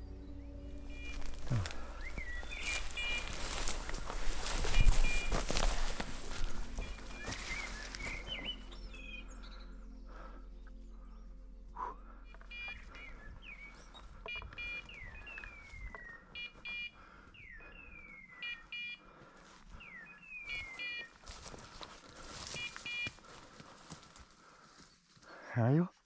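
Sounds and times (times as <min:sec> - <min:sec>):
rustling of brush: 0:00.7 - 0:08.7, 0:20.5 - 0:25.3.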